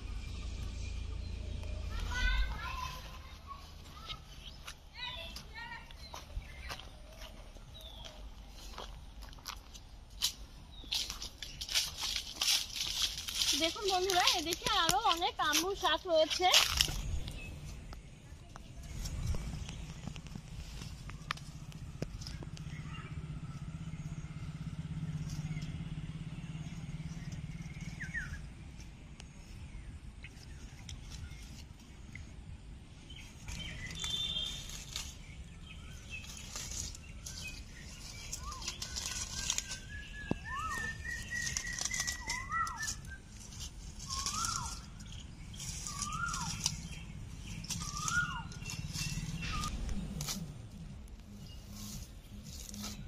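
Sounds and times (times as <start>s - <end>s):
low steady hum: 0.0s - 5.1s
rustling leaves and stems: 0.0s - 53.0s
small bird chirping: 10.6s - 53.0s.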